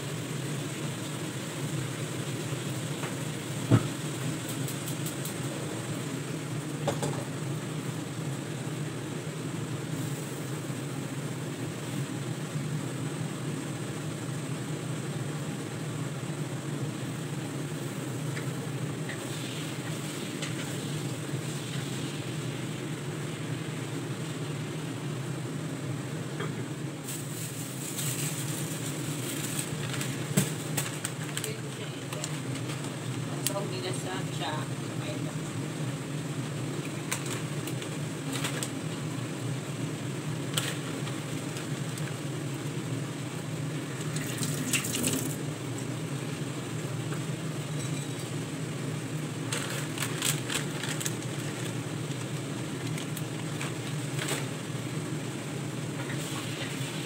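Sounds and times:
low mechanical hum: 0.0 - 57.0
crinkles and clicks: 27.9 - 33.5, 36.8 - 38.8, 40.5 - 42.2, 49.5 - 54.5.

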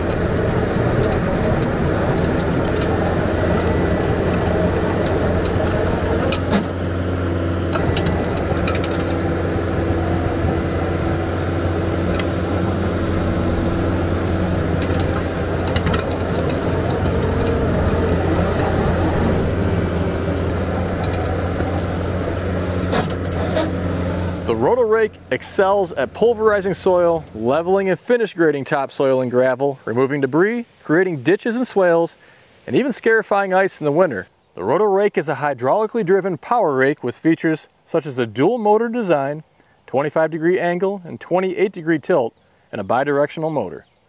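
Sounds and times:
loader diesel engine running: 0.0 - 28.1.

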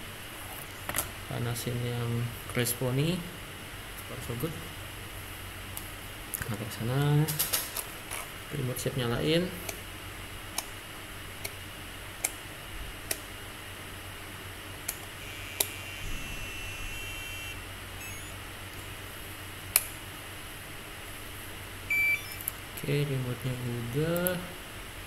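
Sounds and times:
stepped electronic beeps: 15.2 - 18.4, 21.9 - 22.5.

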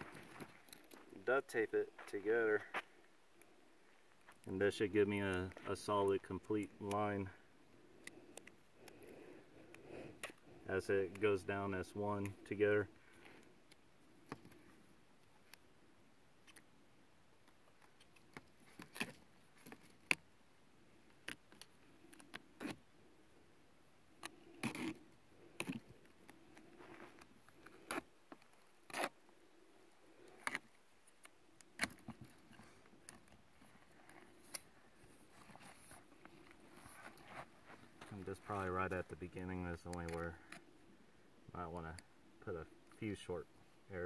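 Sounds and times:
duct tape ripping and crinkling: 18.0 - 20.2, 24.2 - 25.9, 26.5 - 29.2, 30.2 - 33.3.

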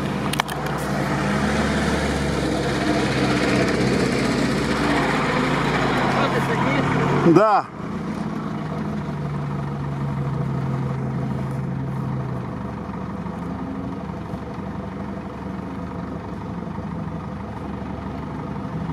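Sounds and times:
off-road engines running: 0.0 - 18.9.

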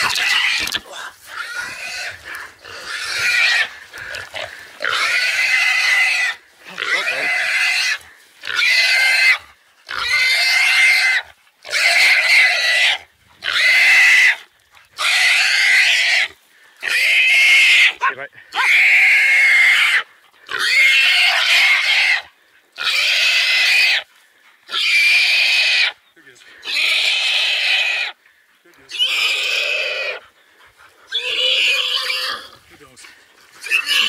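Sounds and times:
pig breathing: 0.0 - 8.6, 26.3 - 33.7
pig squealing: 0.0 - 24.1, 24.7 - 26.0, 26.6 - 28.2, 28.8 - 30.4, 31.1 - 32.6, 33.6 - 34.0.

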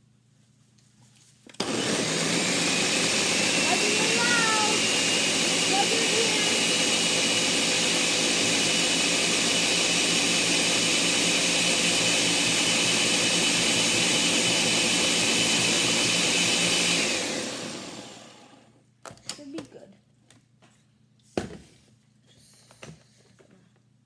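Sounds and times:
blender motor winding down: 1.6 - 18.7
blender running: 1.6 - 18.7.

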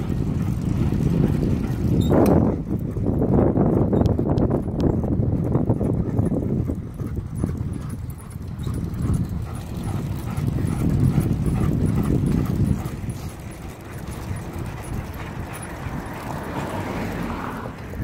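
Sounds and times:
wind rumbling on microphone: 0.0 - 18.0
dog panting: 4.8 - 17.9.

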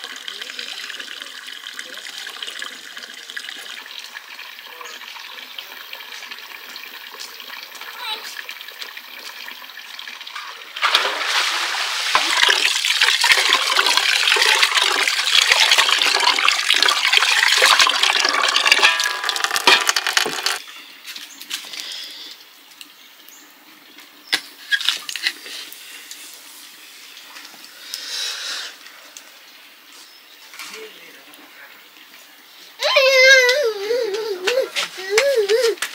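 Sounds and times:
water splashing into metal basin: 0.0 - 20.6.

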